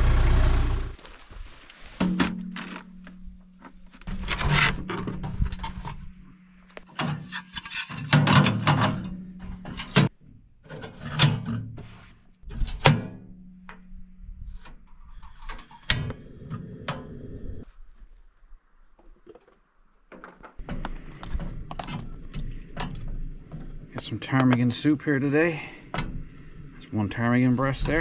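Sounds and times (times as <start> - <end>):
camp stove being handled: 1.5 - 13.9, 14.5 - 17.2, 19.0 - 26.9
steady low hum: 20.6 - 28.0.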